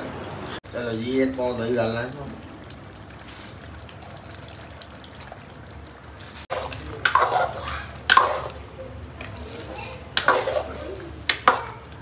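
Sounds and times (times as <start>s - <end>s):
curry bubbling in a pan: 1.2s - 12.0s
ladle scraping against a pan: 6.3s - 11.7s.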